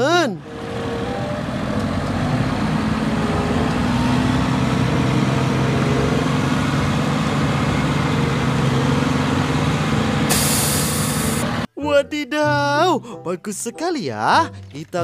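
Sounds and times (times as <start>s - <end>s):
diesel truck engine humming: 0.0s - 11.8s.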